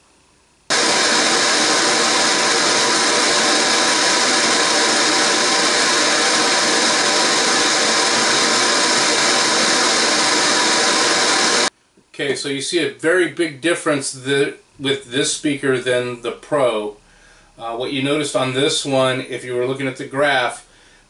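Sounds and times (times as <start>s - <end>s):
pink noise through speaker: 0.7s - 16.3s.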